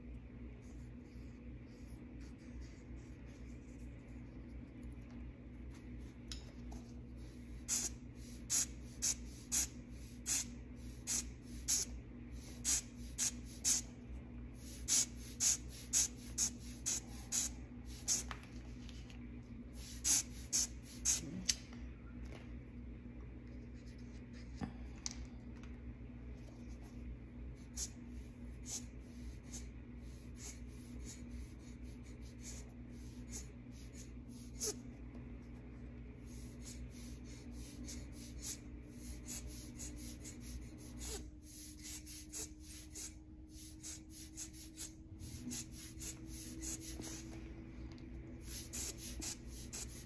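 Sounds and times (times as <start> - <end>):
rubber bulb air blower puffs: 7.5 - 13.9, 14.6 - 18.3, 19.8 - 21.3, 36.3 - 47.4, 48.4 - 50.0.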